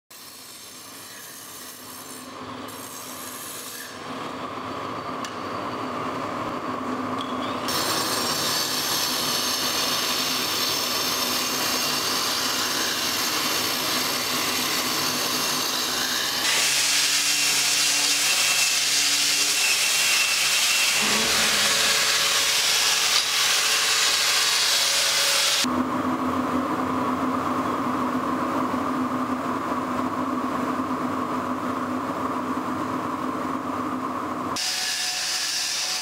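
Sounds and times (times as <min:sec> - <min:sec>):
angle grinder cutting stone: 0:07.7 - 0:25.7.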